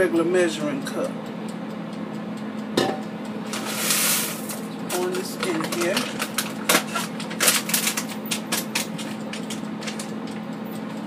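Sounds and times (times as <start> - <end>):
air fryer humming: 0.0 - 11.0
grains pouring into a pot: 3.6 - 4.5.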